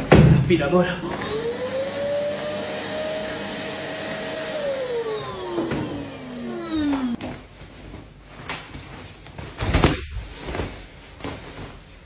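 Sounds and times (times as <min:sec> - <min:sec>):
handheld vacuum cleaner motor whine: 0:01.1 - 0:07.2.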